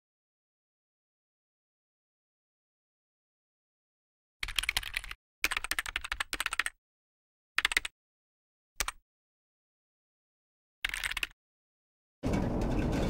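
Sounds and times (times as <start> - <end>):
computer keyboard typing: 4.4 - 6.8, 7.6 - 7.9, 8.8 - 9.0, 10.8 - 11.4.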